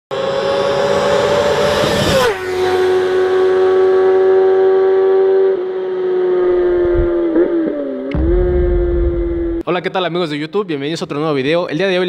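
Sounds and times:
racing engine revving: 0.1s - 9.6s.

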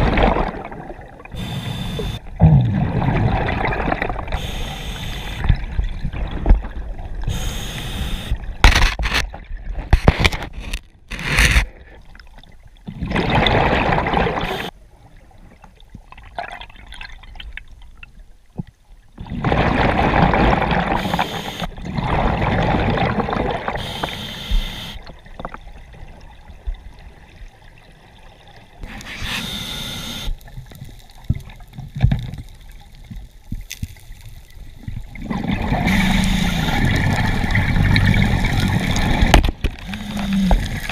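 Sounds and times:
exhaled bubbles rushing: 0.0s - 1.4s, 2.0s - 4.4s, 12.9s - 14.7s, 19.2s - 21.0s, 21.8s - 23.8s, 34.8s - 40.9s.

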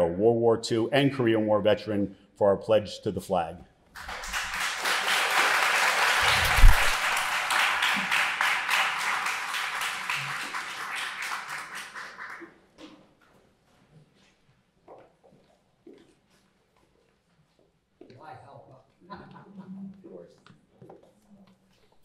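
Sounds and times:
audience applauding: 4.0s - 12.6s.

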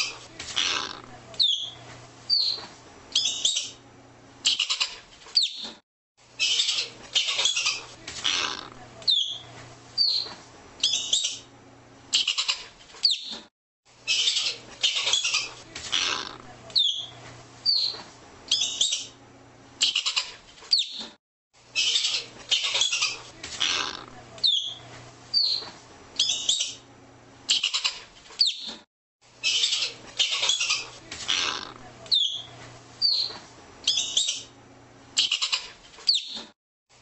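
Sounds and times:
ground squirrel high chirps: 1.4s - 2.6s, 24.4s - 24.8s, 25.4s - 26.8s, 29.4s - 34.5s
ground squirrel chattering calls: 12.2s - 13.3s, 21.8s - 24.8s, 29.4s - 32.4s, 35.2s - 36.4s.

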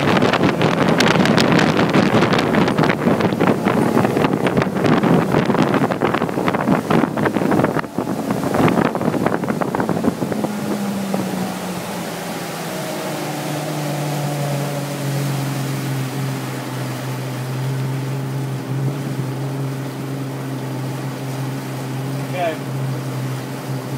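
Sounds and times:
outboard motor running: 0.0s - 23.9s
water rushing: 0.0s - 23.9s
wind buffeting microphone: 0.0s - 23.9s.

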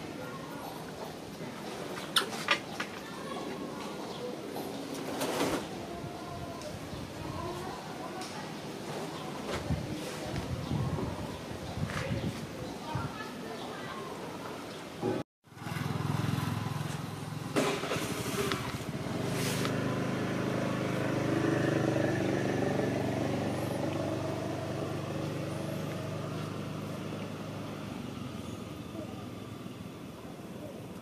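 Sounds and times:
vehicle engine running: 15.5s - 30.2s.

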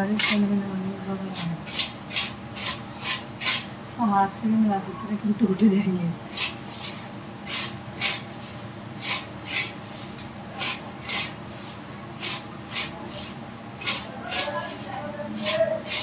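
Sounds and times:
steady low hum: 0.0s - 16.0s
chips rustling in metal bowl: 6.3s - 16.0s.

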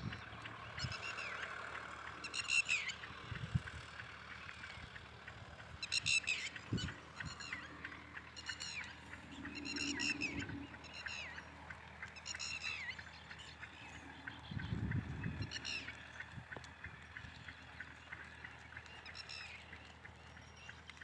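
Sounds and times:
low drawn-out animal call: 5.8s - 12.9s.

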